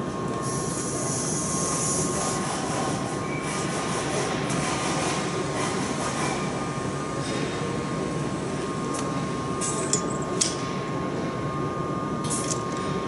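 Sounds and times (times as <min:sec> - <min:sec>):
thin steady whine: 0:00.0 - 0:03.5
factory machinery hum: 0:00.0 - 0:13.0.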